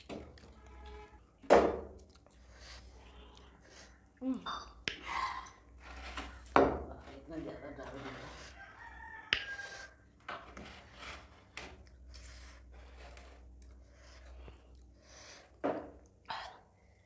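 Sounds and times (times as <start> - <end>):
chewing and mouth sounds: 0.0 - 1.2, 1.8 - 5.6, 13.4 - 16.7
fingers mixing food on steel plate: 6.3 - 14.9.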